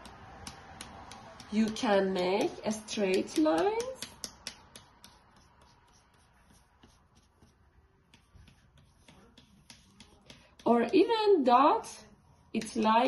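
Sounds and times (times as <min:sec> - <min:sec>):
plastic fork scratching wet paint: 0:00.0 - 0:11.1.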